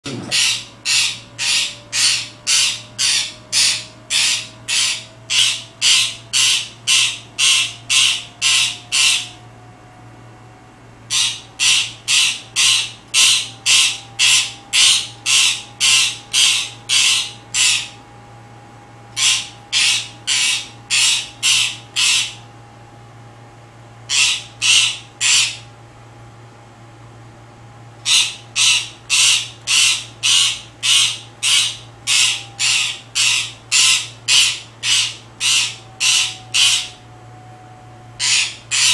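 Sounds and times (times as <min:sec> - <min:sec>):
parakeet barking like a dog: 0:00.1 - 0:09.4, 0:11.1 - 0:18.0, 0:19.1 - 0:22.4, 0:24.1 - 0:25.7, 0:28.0 - 0:37.0, 0:38.2 - 0:38.9.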